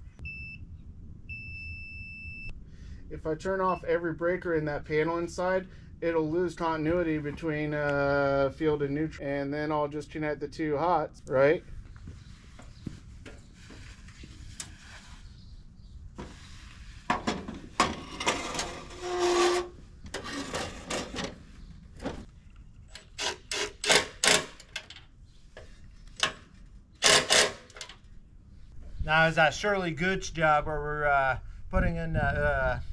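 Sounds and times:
metal box scraping on wood: 16.2 - 21.4
sharp scrapes and knocks: 16.2 - 21.4.

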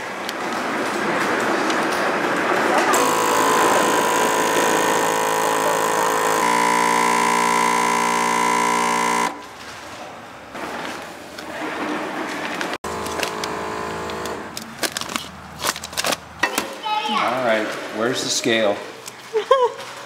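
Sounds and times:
vacuum sealer pump humming: 2.9 - 9.6, 12.8 - 15.3.

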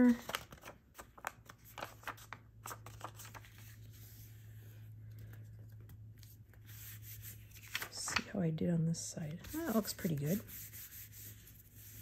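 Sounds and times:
hand rubbing paper: 6.6 - 7.9, 9.4 - 12.0
paper taps and rustles: 7.6 - 8.3.

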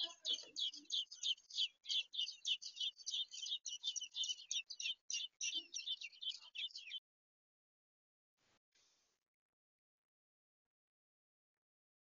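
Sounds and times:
nestlings squeaky begging calls: 0.0 - 7.0.

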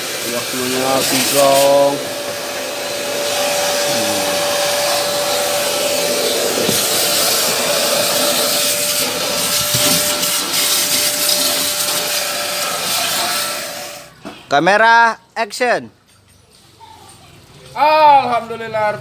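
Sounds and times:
vacuum cleaner running: 0.0 - 14.1
vacuum nozzle knocking: 0.7 - 12.2.

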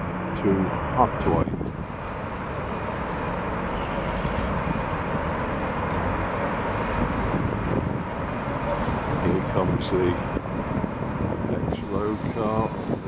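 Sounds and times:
bus engines rumbling: 0.0 - 13.0
high-pitched squeal: 6.2 - 8.2, 11.8 - 13.0.

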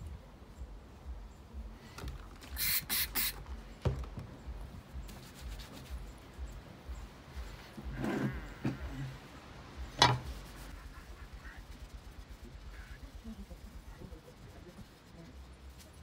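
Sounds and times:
spray bottle spritzes: 2.4 - 3.4.

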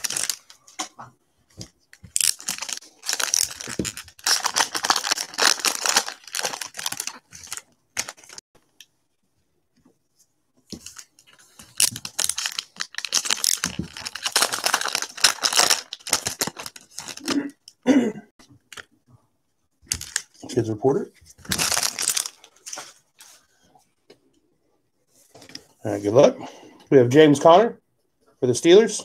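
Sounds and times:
wrappers tearing and crinkling: 0.0 - 0.6, 2.0 - 8.4, 10.9 - 17.4, 19.9 - 20.4, 21.4 - 23.0.

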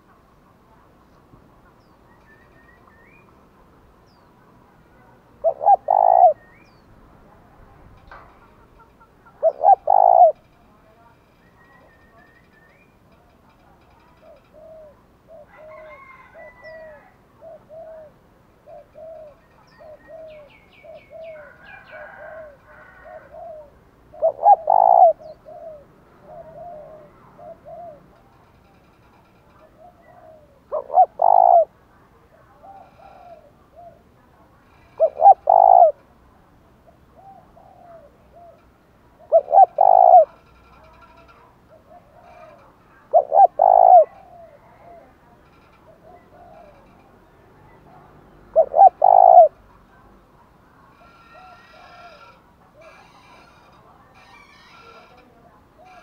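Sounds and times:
dove cooing: 5.4 - 6.8, 8.4 - 10.4, 14.2 - 28.2, 29.6 - 34.2, 34.9 - 36.0, 36.8 - 47.0, 47.9 - 49.6, 51.0 - 53.0.

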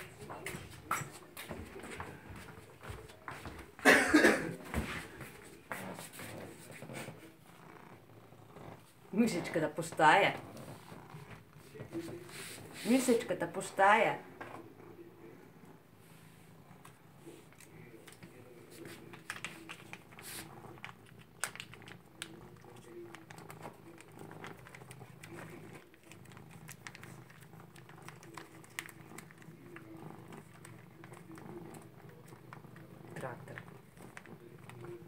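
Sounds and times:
cat purring: 0.0 - 3.8, 4.5 - 35.0
cat licking and chewing food: 15.6 - 35.0.

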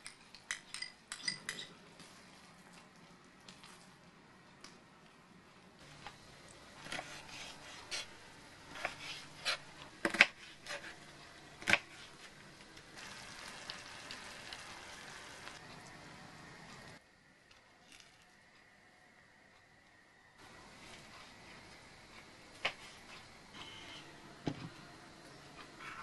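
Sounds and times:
sauce sizzling in a pan: 13.0 - 15.6.

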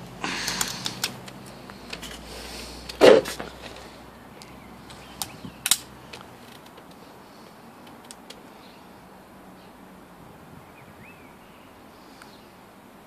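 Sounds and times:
air pistol action clicks: 5.2 - 5.9.

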